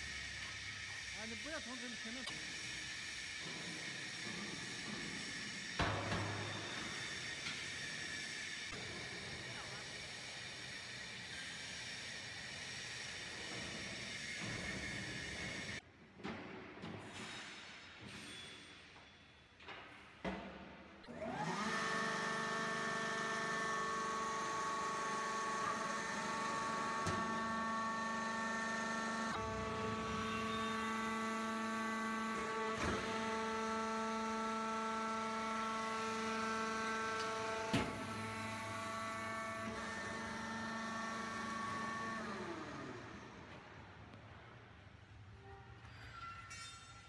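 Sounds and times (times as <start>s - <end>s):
hydraulic pump motor whining: 21.1s - 43.8s.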